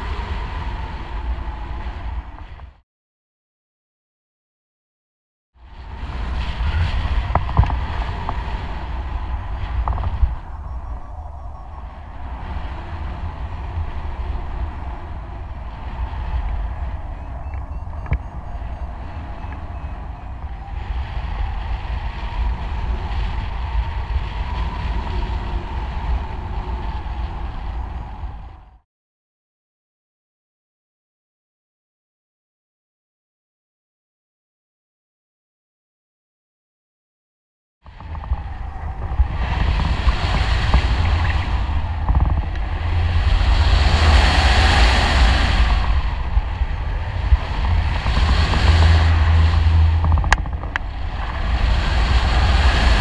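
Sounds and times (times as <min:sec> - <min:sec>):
wind buffeting microphone: 0:00.0 - 0:02.8, 0:05.6 - 0:28.8, 0:37.8 - 0:53.0.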